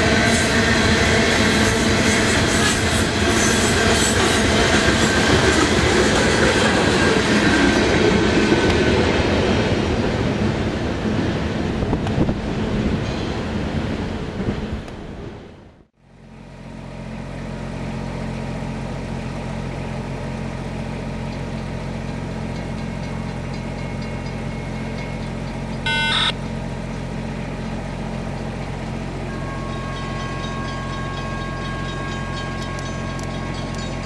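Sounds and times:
diesel engine drone: 24.5 - 31.7
high ringing tones: 25.8 - 26.4, 29.3 - 34.0
horn blast: 25.9 - 26.3.

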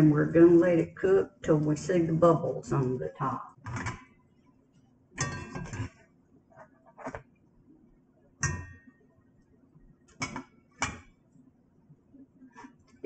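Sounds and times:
metal spatula clinking on cookware: 5.2 - 5.8.

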